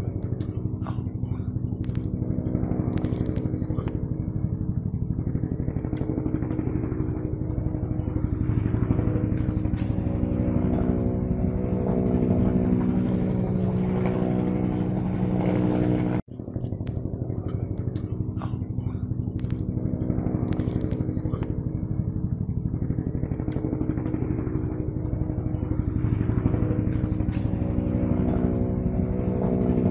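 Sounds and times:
helicopter engine hum: 0:00.0 - 0:29.9
helicopter rotor beat: 0:00.0 - 0:29.9.

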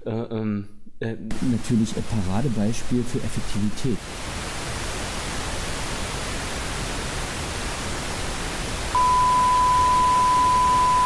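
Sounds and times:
television static hiss: 0:01.3 - 0:11.0
test-tone beep: 0:09.0 - 0:11.0.

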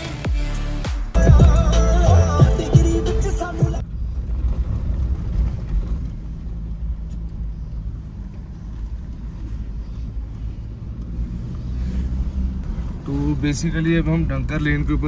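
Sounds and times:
background music: 0:00.0 - 0:03.8
car engine and tyres rumbling: 0:00.0 - 0:15.0.

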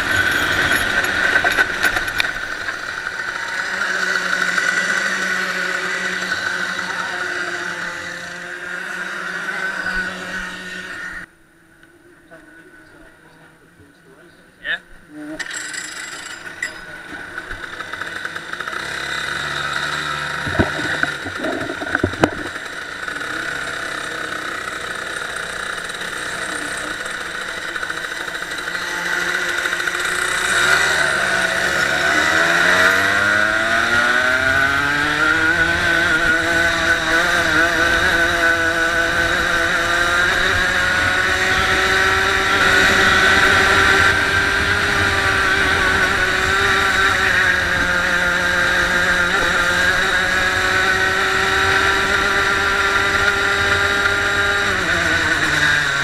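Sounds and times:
kart engine revving: 0:00.0 - 0:11.3, 0:15.2 - 0:56.0
sharp knocks: 0:20.4 - 0:22.6.

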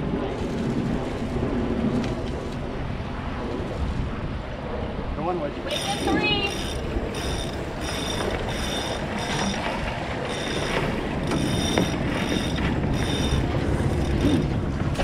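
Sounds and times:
water noise: 0:00.0 - 0:15.0
wind: 0:00.0 - 0:15.0
winch ratchet whirring: 0:05.7 - 0:14.6.

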